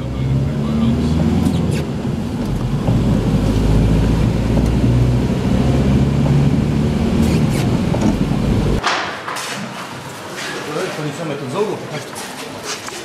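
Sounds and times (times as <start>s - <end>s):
car interior road rumble: 0.0s - 8.8s.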